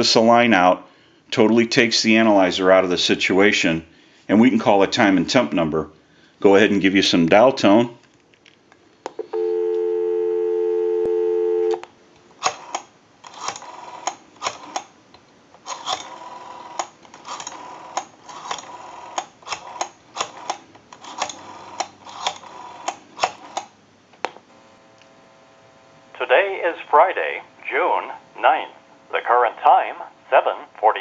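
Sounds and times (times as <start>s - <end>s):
telephone dial tone: 9.2s - 11.8s.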